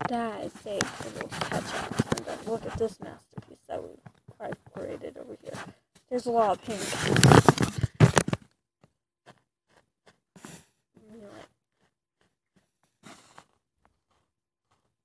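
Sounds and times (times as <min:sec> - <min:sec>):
hand brushing sand across cloth: 0:00.3 - 0:03.0.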